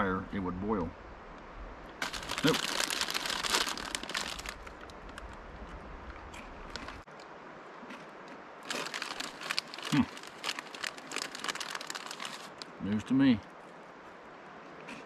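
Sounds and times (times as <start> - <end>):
foil snack bag crinkling: 2.0 - 4.9, 8.6 - 12.7.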